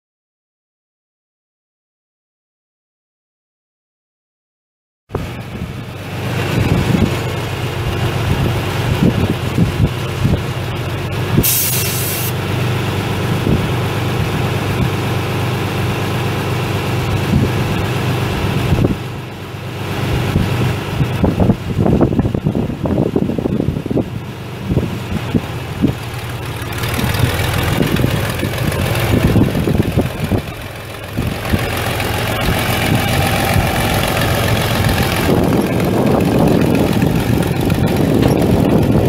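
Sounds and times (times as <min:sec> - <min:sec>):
tractor engine running: 0:05.1 - 0:39.0
loud hiss: 0:11.4 - 0:12.4.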